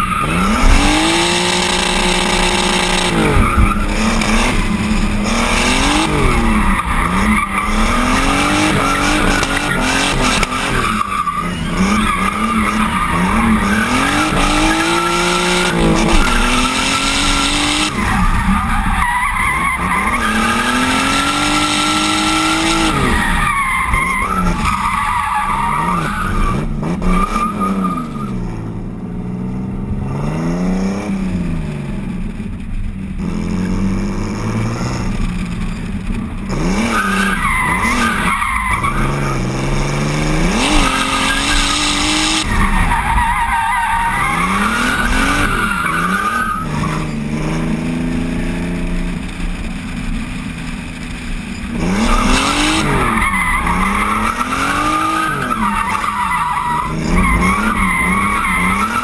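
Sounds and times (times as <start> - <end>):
car engine revving: 0.0 - 59.0
tyres squealing: 40.5 - 47.2, 51.9 - 59.0.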